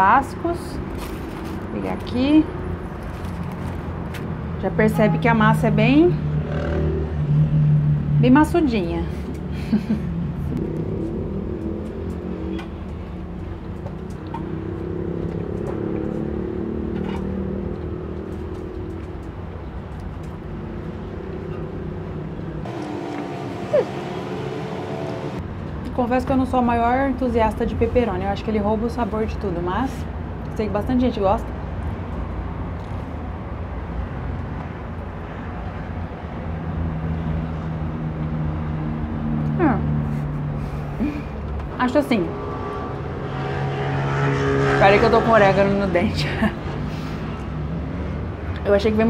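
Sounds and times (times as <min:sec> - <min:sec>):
traffic engine drone: 0:00.0 - 0:49.0.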